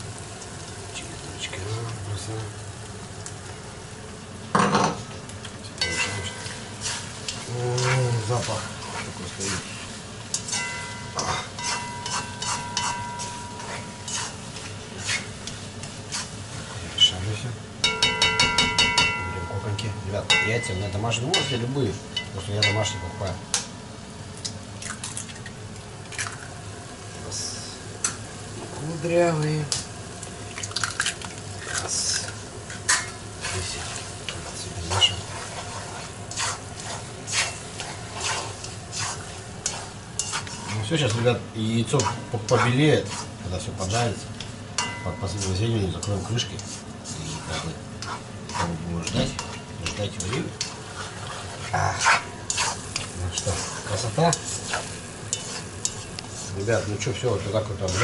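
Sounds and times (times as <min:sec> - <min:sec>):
food sizzling in a pot: 0:00.0 - 0:58.0
spatula scraping and knocking pot: 0:10.3 - 0:16.3, 0:17.8 - 0:21.6, 0:34.9 - 0:43.3, 0:43.9 - 0:58.0
faint ringing tone: 0:10.5 - 0:14.1.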